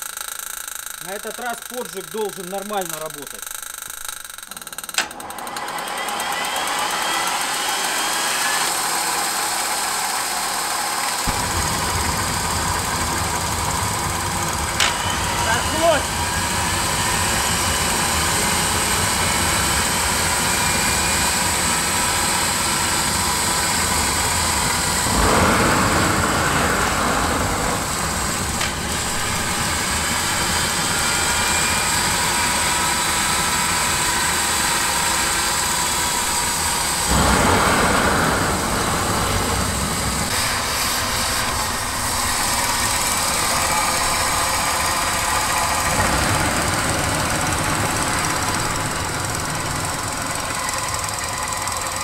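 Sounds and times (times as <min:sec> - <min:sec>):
gas turbine whine: 0:01.0 - 0:52.0
rushing bursts: 0:23.8 - 0:32.3, 0:34.6 - 0:52.0.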